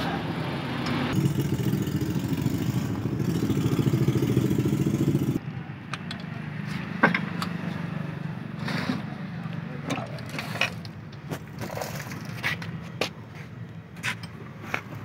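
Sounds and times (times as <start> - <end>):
engine running: 0.2 - 5.4.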